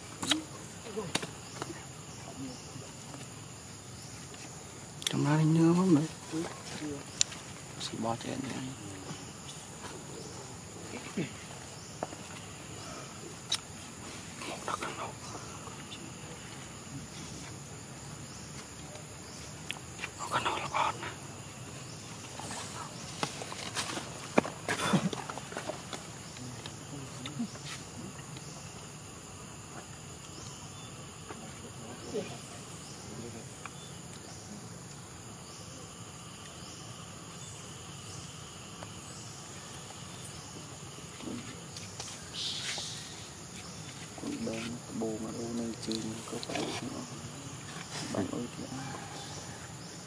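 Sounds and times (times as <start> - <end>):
insect chorus drone: 0.0 - 50.0
outdoor background hiss: 0.0 - 50.0
animal calls: 20.2 - 21.3.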